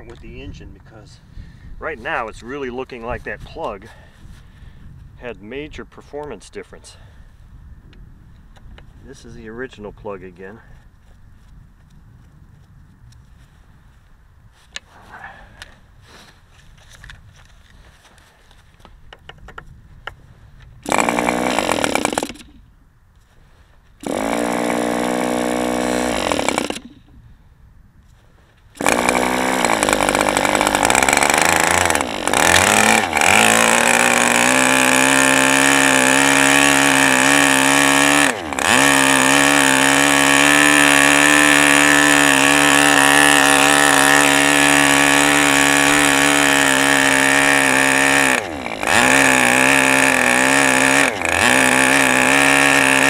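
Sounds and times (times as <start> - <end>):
electric starter spinning: 20.8 - 22.6, 24.0 - 27.1, 28.8 - 53.0
model aircraft engine running: 20.8 - 22.6, 28.8 - 53.0.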